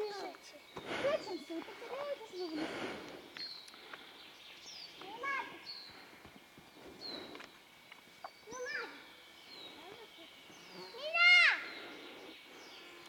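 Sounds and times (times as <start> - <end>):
faint birdsong whistled notes: 3.2 - 13.0.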